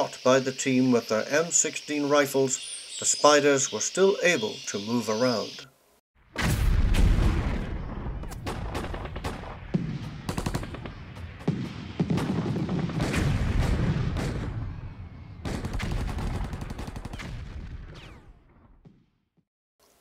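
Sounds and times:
rapid rifle fire bursts: 10.3 - 13.2, 15.4 - 17.3.

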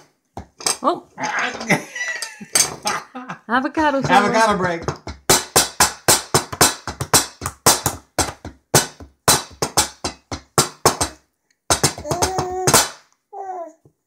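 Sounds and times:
hands drumming on wooden table: 4.0 - 13.0.

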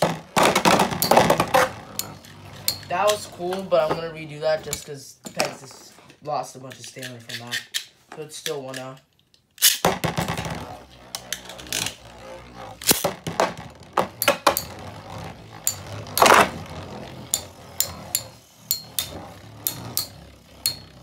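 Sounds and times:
spinning tops whirring: 0.0 - 5.0, 9.6 - 21.0.

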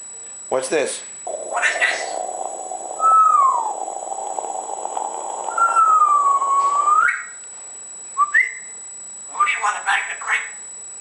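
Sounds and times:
steady hiss: 1.3 - 7.0
parrot whistling: 1.3 - 7.4, 8.2 - 8.7.

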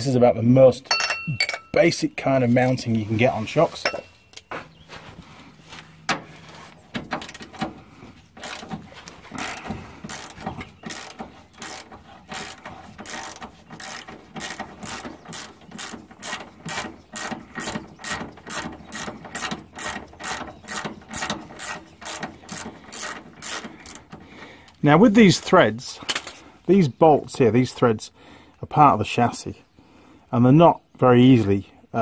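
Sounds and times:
hand ratchet clicking: 7.1 - 7.7, 8.4 - 24.2.

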